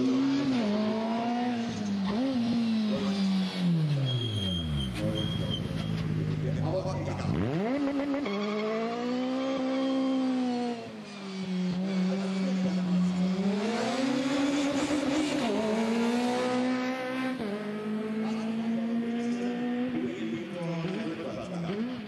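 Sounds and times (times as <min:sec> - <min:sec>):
kart engines revving: 0:00.0 - 0:22.0.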